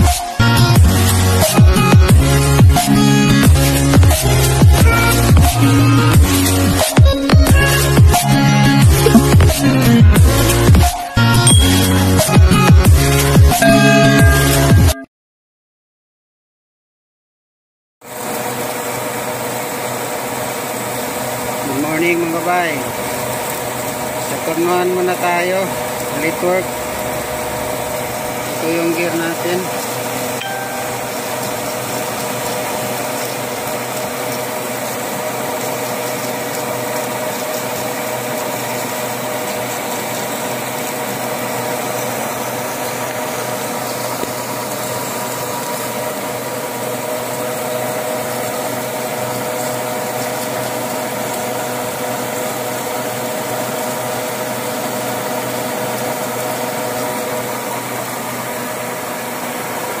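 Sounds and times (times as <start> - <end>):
metal lathe running: 18.4 - 60.0.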